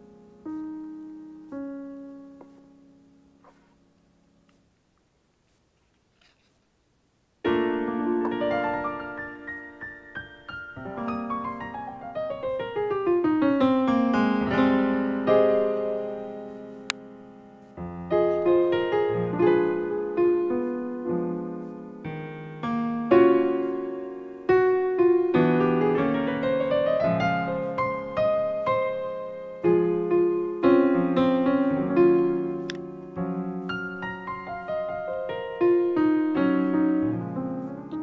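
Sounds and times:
solo piano music: 0.0 - 4.6, 7.4 - 38.0.

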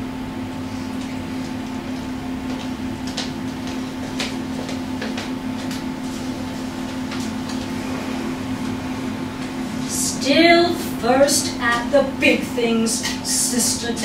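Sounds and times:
steady low hum: 0.0 - 14.0
footsteps on wooden stage: 1.0 - 6.0.

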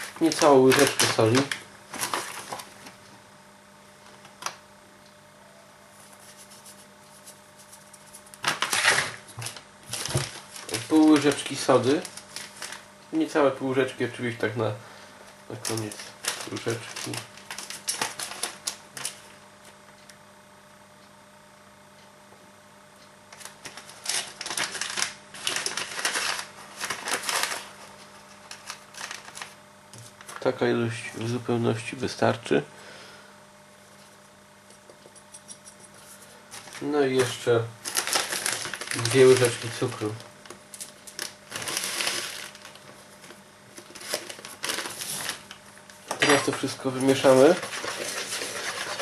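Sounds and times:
paper packet crinkling: 0.0 - 2.9, 6.2 - 12.9, 15.5 - 19.3, 23.3 - 30.6, 36.5 - 49.0
spoon scraping and bag rustling: 47.0 - 49.0.

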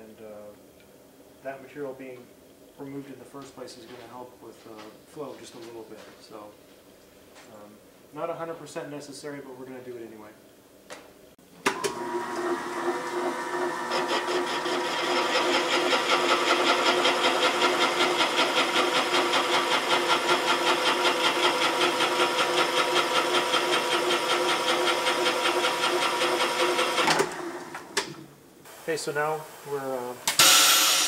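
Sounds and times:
machine cutter ringing tone: 30.4 - 31.0.

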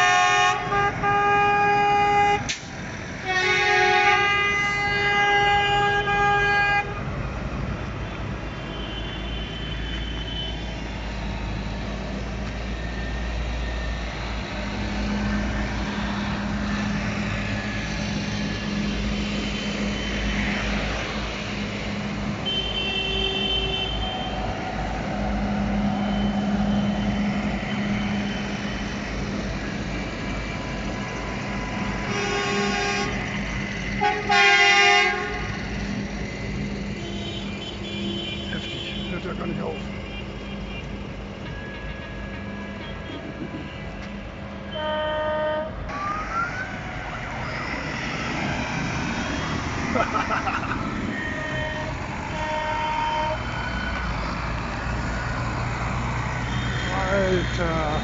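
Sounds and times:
horns honking: 0.0 - 2.6, 3.2 - 7.0, 22.4 - 24.6, 32.0 - 33.4, 34.0 - 35.8, 36.9 - 45.8, 49.3 - 53.8, 56.3 - 58.0
tractor diesel engines running: 0.0 - 58.0.

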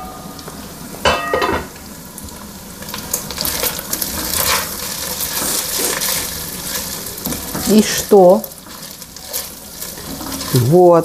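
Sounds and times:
boiling pot sizzling hiss: 0.0 - 11.0.

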